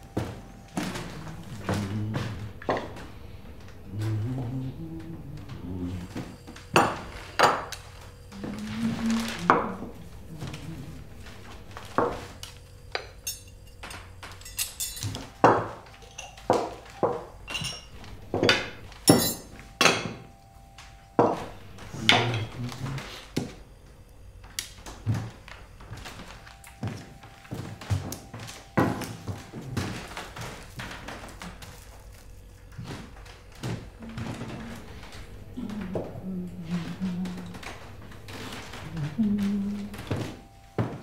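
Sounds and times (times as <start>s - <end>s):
tableware clinking on wooden table: 13.0s - 20.3s.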